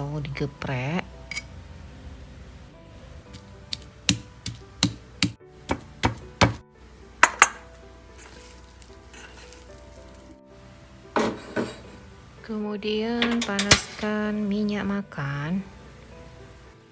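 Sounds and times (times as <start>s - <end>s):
soft background music: 0.0s - 16.9s
stone pestle pounding on mortar: 3.7s - 6.6s.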